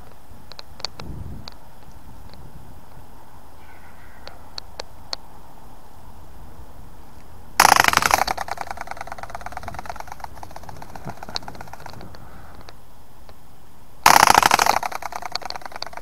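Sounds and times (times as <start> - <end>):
toy flapping wings clattering: 7.6 - 12.6, 14.0 - 16.0.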